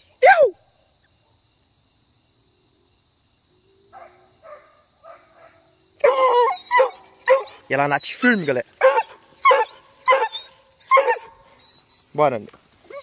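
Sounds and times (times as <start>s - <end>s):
dog barking and baying: 3.9s - 11.4s.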